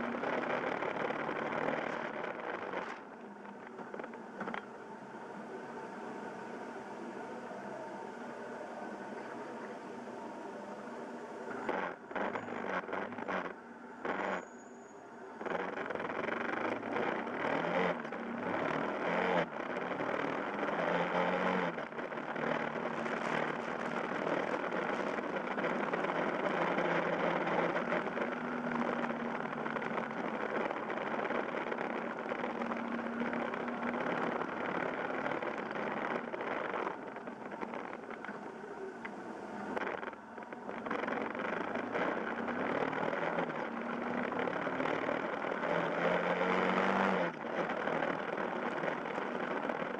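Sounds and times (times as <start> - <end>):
motorcycle engine running: 0.0 - 5.0, 15.4 - 49.9
wind and road noise: 0.0 - 49.9.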